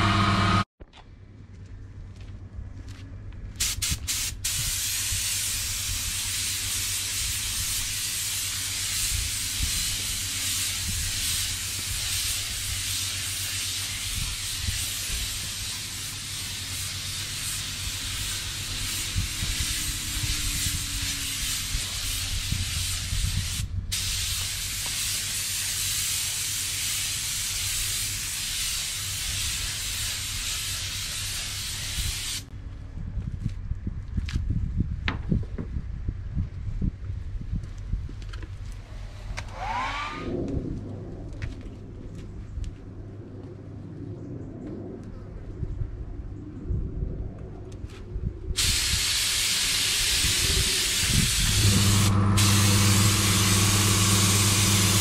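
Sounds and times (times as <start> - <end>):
paint spray gun hissing: 3.6 - 32.5, 48.6 - 55.0
steady low rumble: 8.5 - 24.9, 32.2 - 35.1, 35.7 - 39.4, 40.2 - 55.0.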